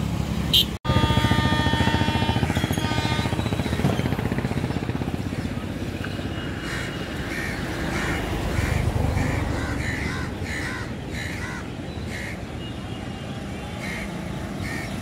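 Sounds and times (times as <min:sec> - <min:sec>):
crows cawing: 0:06.6 - 0:12.4, 0:13.8 - 0:15.0.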